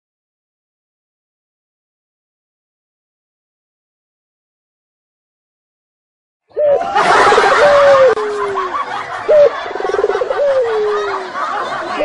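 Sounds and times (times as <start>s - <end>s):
crowd noise: 6.5s - 12.0s
comic laughing sound: 6.6s - 12.0s.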